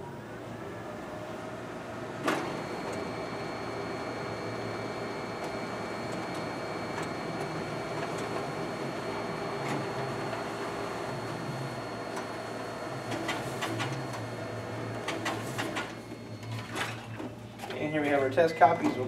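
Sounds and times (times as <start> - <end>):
copier whirring with high whine: 0.0 - 19.0
copier clack: 2.2 - 3.1, 5.4 - 8.6, 13.0 - 19.0.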